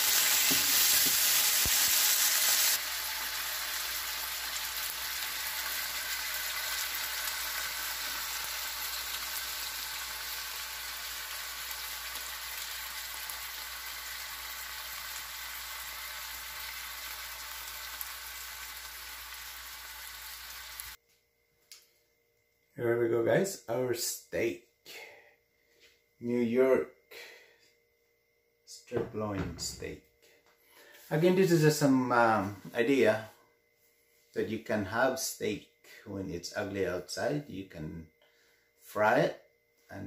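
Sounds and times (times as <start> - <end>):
steaks sizzling in frying pan: 0.0 - 21.0.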